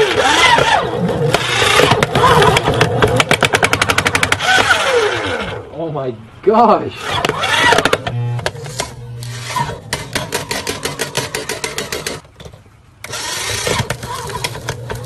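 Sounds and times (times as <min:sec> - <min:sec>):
sharp cracking clicks: 0:00.0 - 0:04.8
paper shredder motor running: 0:00.0 - 0:05.6, 0:07.0 - 0:12.2, 0:13.0 - 0:15.0
shredder cutters crunching phone: 0:00.0 - 0:05.6, 0:07.0 - 0:12.2, 0:13.0 - 0:15.0.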